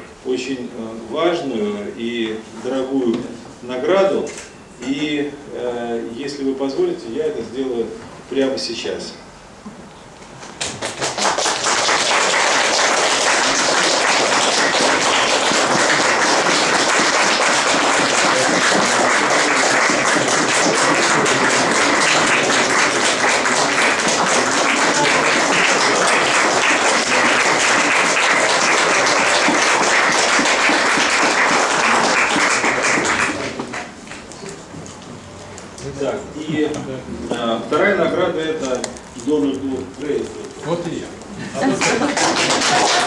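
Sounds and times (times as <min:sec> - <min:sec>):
audience applauding: 0:10.6 - 0:33.9, 0:41.6 - 0:43.0.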